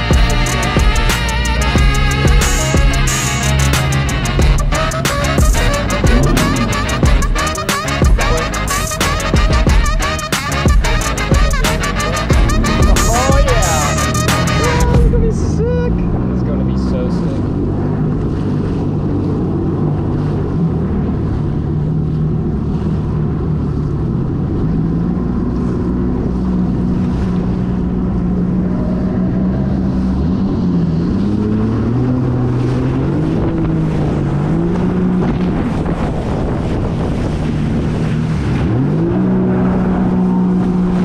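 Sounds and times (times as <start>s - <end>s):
jet ski engine running: 0.0s - 41.0s
wind buffeting microphone: 12.3s - 41.0s.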